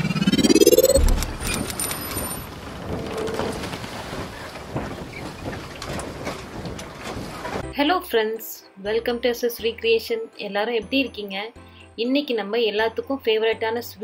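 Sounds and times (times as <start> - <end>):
low boom: 0.0 - 1.7
rising swoosh: 0.0 - 1.9.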